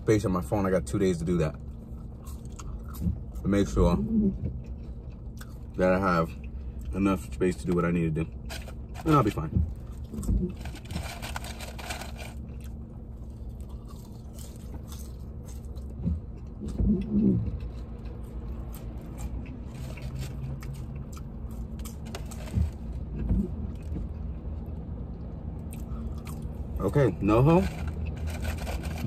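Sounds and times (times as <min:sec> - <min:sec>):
low hum inside a car: 0:00.0 - 0:29.0
person chewing: 0:01.8 - 0:03.4, 0:04.6 - 0:05.8, 0:09.8 - 0:22.6, 0:25.6 - 0:26.6
mouth or handling noises: 0:26.9 - 0:29.0.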